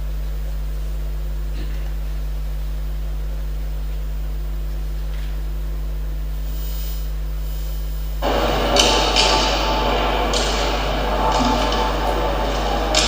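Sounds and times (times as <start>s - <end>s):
electrical mains hum: 0.0s - 13.0s
sound system hiss: 0.0s - 13.0s.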